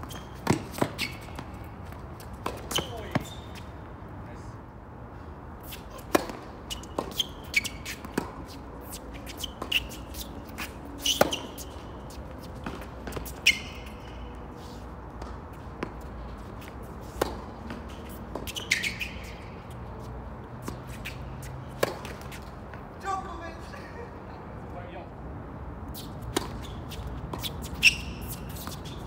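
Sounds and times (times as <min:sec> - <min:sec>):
tennis balls struck by rackets: 0:00.0 - 0:03.6, 0:05.8 - 0:14.2, 0:15.1 - 0:19.6, 0:20.6 - 0:22.9, 0:26.1 - 0:29.0
tennis ball bouncing on court: 0:00.0 - 0:03.7, 0:05.6 - 0:14.4, 0:15.1 - 0:19.7, 0:20.6 - 0:22.9, 0:26.2 - 0:29.0
shoes squeaking on court: 0:00.0 - 0:04.0, 0:05.6 - 0:23.0, 0:25.8 - 0:29.0.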